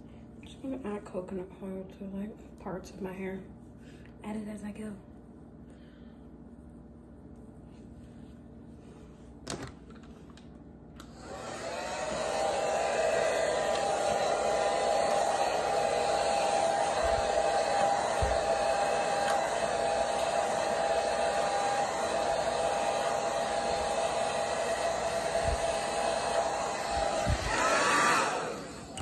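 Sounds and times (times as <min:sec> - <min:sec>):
hair dryer blowing: 0:11.0 - 0:29.0.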